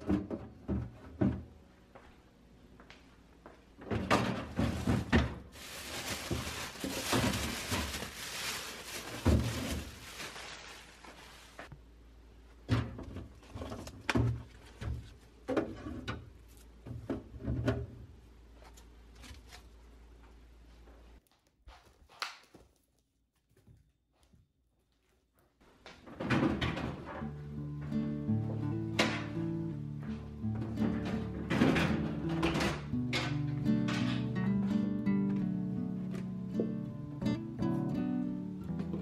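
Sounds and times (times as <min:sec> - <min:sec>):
items set down with thunks: 0:09.0 - 0:10.0.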